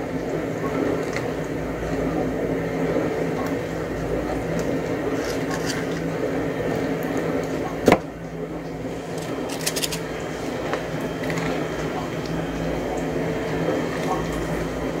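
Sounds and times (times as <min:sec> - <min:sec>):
steady low hum: 0:00.0 - 0:15.0
light clicks and scrapes: 0:05.2 - 0:06.1.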